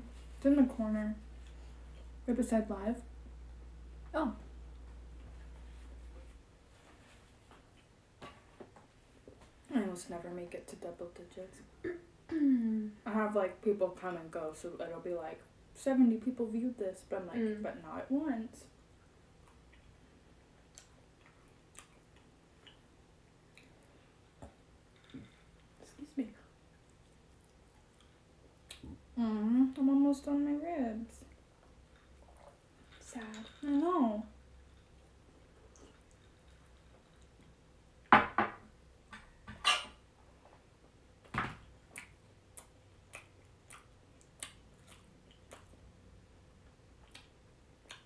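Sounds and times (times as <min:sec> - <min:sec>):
mouth clicks and chewing smacks: 0:20.6 - 0:22.9, 0:41.9 - 0:45.9, 0:47.0 - 0:48.0.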